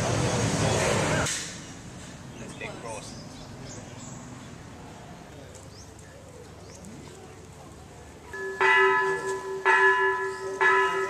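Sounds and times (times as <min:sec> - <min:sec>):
temple bell ringing: 0:08.3 - 0:11.0.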